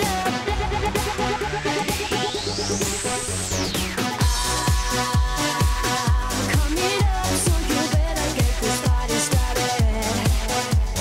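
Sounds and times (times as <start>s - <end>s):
synth sweep rising in pitch: 0.0s - 5.1s
dance beat: 0.0s - 11.0s.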